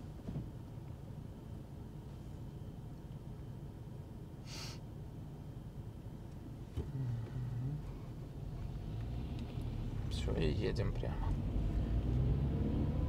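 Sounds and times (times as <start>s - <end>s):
short breath-like hiss: 4.4s - 4.8s.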